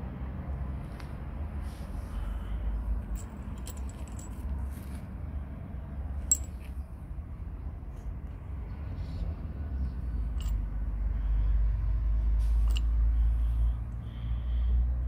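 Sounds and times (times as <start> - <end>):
metal figurines clinking: 3.1 - 4.5, 6.2 - 6.7, 10.3 - 10.7, 12.6 - 12.9.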